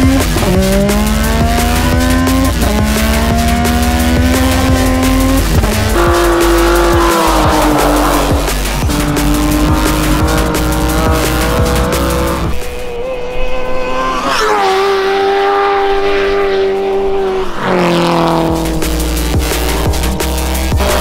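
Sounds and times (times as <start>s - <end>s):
background music with steady beat: 0.0s - 12.9s, 18.0s - 21.0s
car engines revving high: 0.0s - 21.0s.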